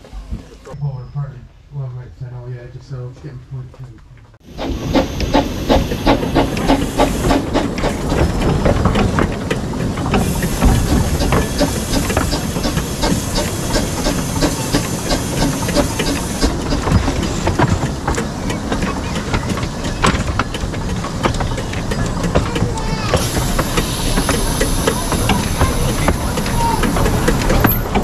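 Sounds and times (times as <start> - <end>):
wheels clicking: 4.0 - 28.0
steam hissing: 4.4 - 8.3, 10.1 - 17.9, 20.6 - 28.0.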